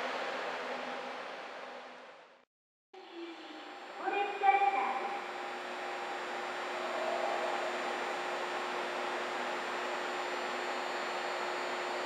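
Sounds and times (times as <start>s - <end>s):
train electrical hum and hiss: 3.0s - 12.0s.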